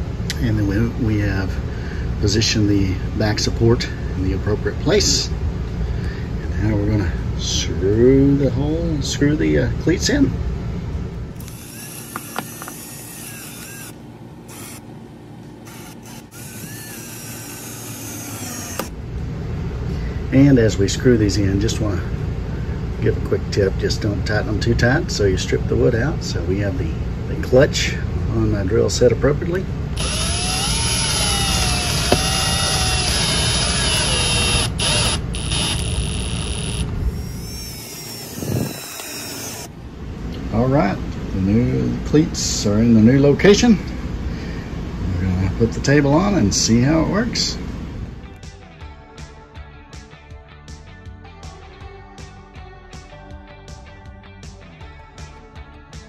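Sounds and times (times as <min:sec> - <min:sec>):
cordless drill motor whining: 0:11.4 - 0:19.0, 0:30.0 - 0:39.7
sharp clicks: 0:30.0 - 0:36.0, 0:37.8 - 0:39.7.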